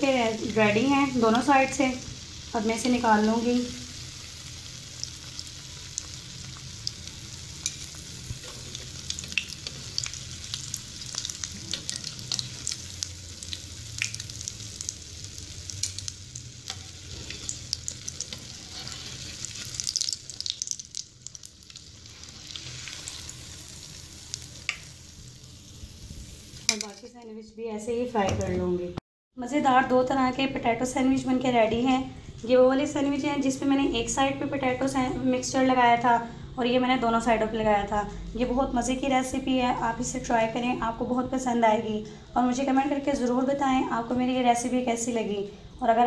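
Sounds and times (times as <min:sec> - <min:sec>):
food sizzling in oil: 0:00.0 - 0:27.2.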